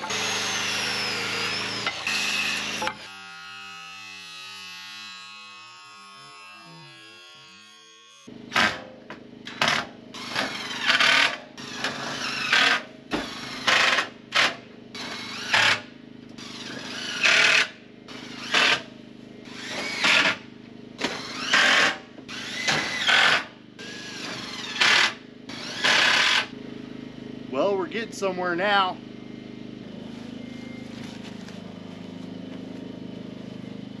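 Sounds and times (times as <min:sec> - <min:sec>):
power drill driving screws: 0:00.0 - 0:03.7, 0:09.5 - 0:18.8, 0:19.5 - 0:20.4, 0:21.0 - 0:26.5.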